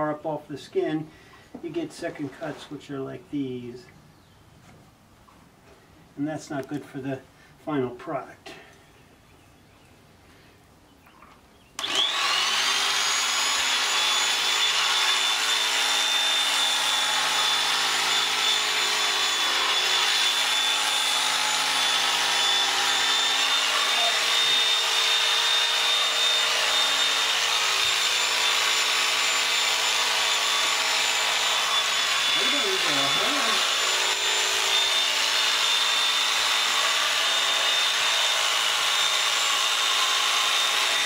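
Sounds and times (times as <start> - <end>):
electric clippers whining: 11.8 - 41.0.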